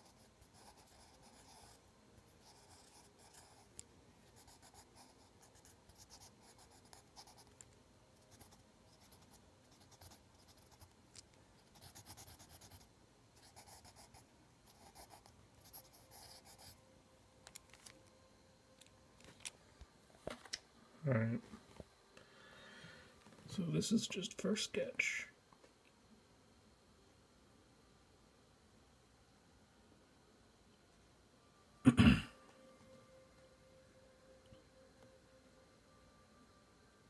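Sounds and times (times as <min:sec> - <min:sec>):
pencil scratching on paper: 0:00.0 - 0:01.8, 0:02.4 - 0:03.7, 0:04.3 - 0:07.6, 0:08.3 - 0:10.9, 0:11.6 - 0:16.8.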